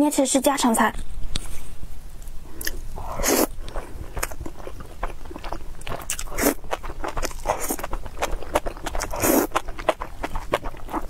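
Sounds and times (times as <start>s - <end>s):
wet chewing with mouth clicks: 2.5s - 11.0s.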